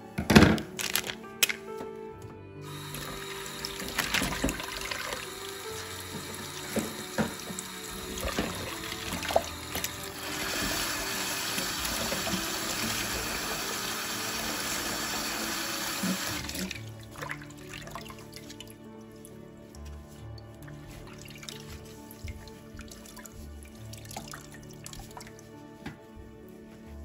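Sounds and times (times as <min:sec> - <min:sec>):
tap water running into a sink: 0:02.6 - 0:18.6.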